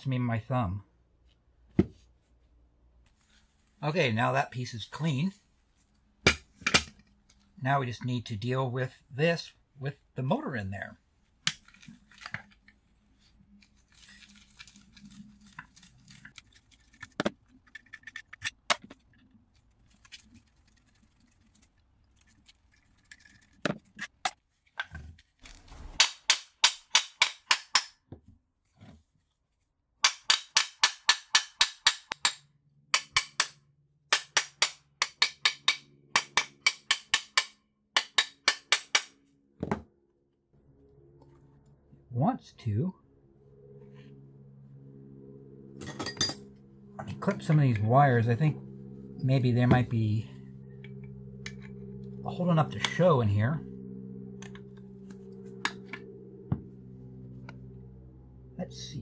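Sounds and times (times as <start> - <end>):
hammer striking metal: 6.2 - 6.9, 33.0 - 39.2.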